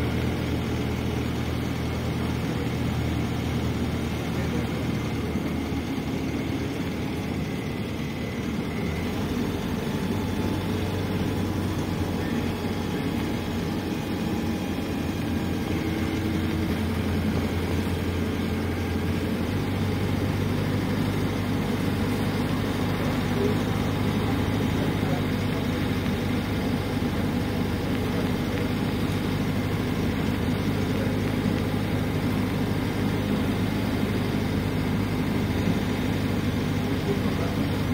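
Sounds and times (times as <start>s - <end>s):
bus diesel engine drone: 0.0s - 37.9s
road noise: 0.0s - 37.9s.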